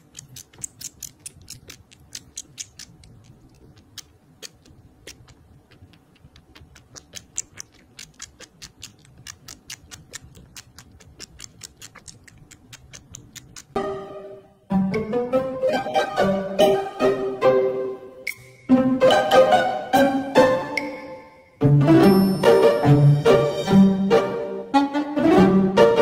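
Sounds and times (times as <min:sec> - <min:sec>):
kitten suckling clicking smacks: 0:00.0 - 0:13.8.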